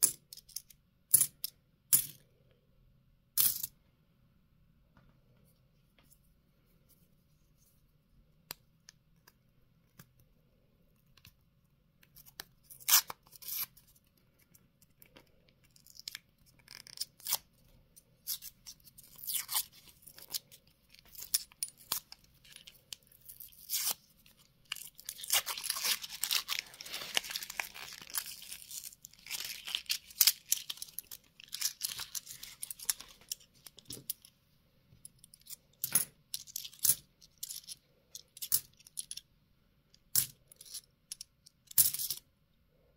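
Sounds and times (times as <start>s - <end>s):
paper wrapper tearing: 24.8s - 33.0s.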